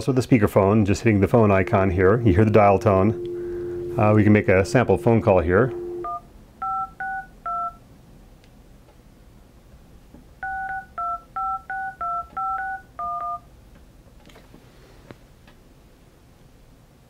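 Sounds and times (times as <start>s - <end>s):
keypad tone beeps: 1.5s - 7.8s, 10.4s - 13.4s.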